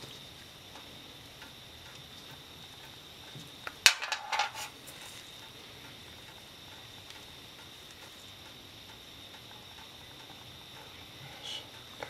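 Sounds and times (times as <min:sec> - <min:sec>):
metal parts clinking on steel tray: 0:03.8 - 0:04.7.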